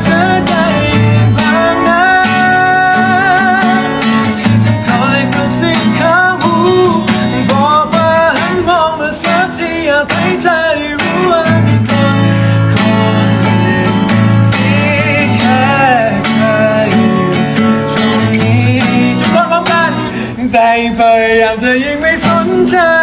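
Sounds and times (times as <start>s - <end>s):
man singing: 0.0s - 23.0s
strummed acoustic guitar: 0.0s - 23.0s.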